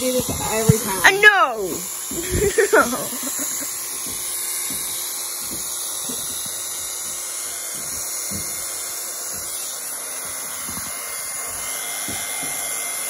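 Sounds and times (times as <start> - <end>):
electric hair clippers cutting hair: 0.0 - 13.0.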